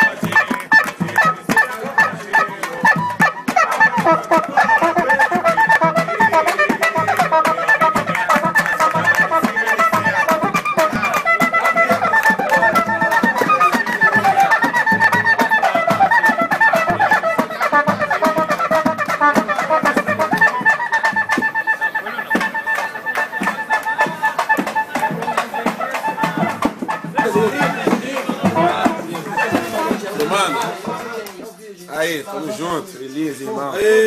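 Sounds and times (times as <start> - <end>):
hand drums: 0.0 - 31.3.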